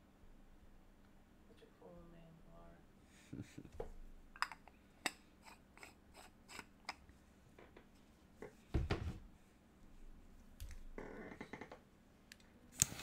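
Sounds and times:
light irregular clicks and taps: 10.6s - 11.0s.

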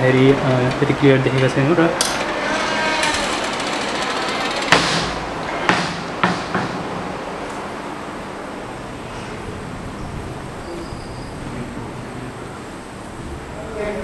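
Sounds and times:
steady hiss: 0.0s - 14.0s
sharp knocks: 0.4s - 7.2s.

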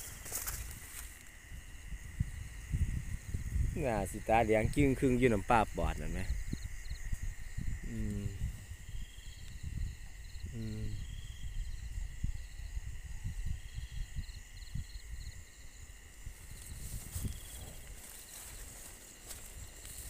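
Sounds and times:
leaves rustling: 0.0s - 1.6s, 16.2s - 20.0s
low thumps of footsteps: 0.0s - 2.2s, 16.2s - 20.0s
night insects chirping: 0.0s - 20.0s.

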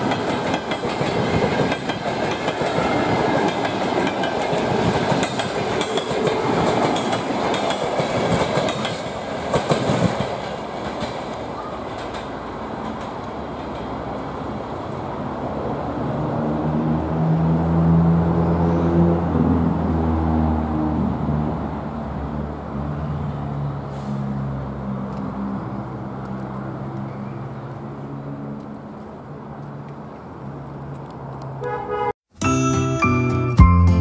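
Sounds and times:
train wheels clattering over rail joints: 0.0s - 14.0s
train rumble: 0.0s - 31.5s.

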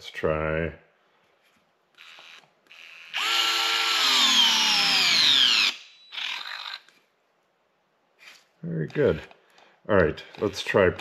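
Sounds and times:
cordless screwdriver motor whine: 2.0s - 6.9s.

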